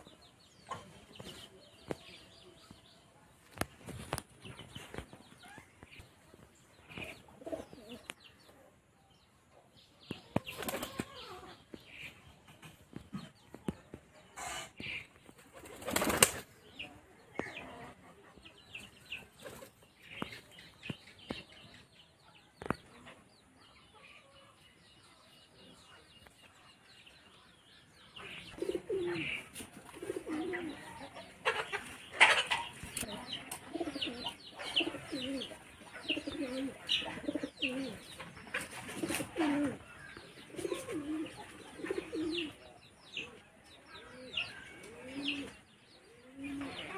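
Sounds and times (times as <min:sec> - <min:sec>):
pigeons cooing: 0:07.3 - 0:08.1, 0:28.4 - 0:31.7, 0:33.5 - 0:42.6, 0:44.0 - 0:46.9
pigeon wing flaps: 0:15.6 - 0:16.4.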